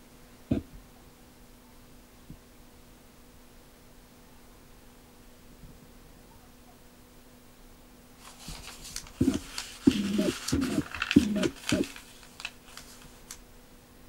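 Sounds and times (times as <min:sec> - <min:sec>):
paper pages rustling: 0:08.2 - 0:13.4
crisp clicks: 0:08.3 - 0:13.4.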